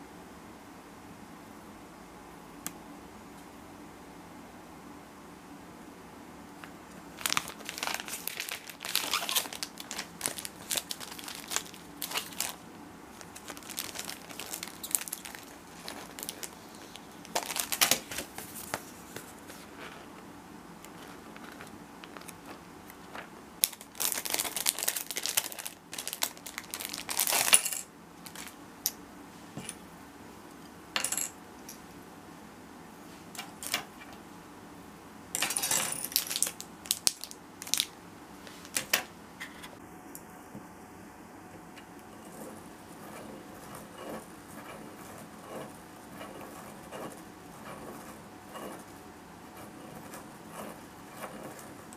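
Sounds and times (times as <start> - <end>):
plastic packaging crinkling: 7.1 - 20.0, 20.9 - 28.6, 35.6 - 38.9
paper rustling: 7.2 - 20.1.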